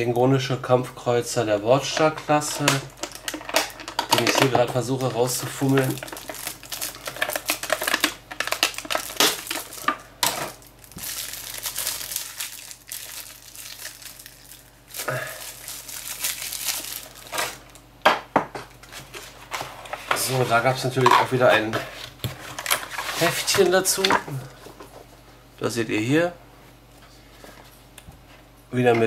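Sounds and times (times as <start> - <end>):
plastic packaging crinkling: 1.9 - 17.9, 22.4 - 24.6.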